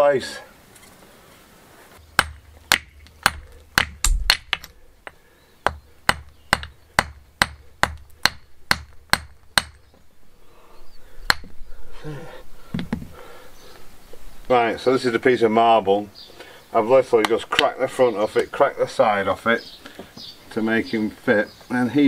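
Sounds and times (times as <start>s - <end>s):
hammer striking marble: 2.2s - 9.8s.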